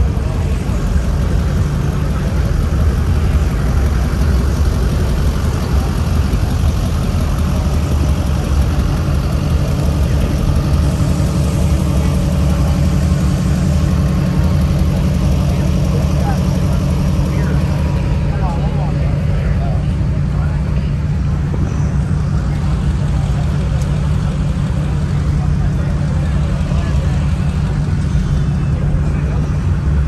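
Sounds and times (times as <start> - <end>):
truck engine idling: 0.0 - 30.0.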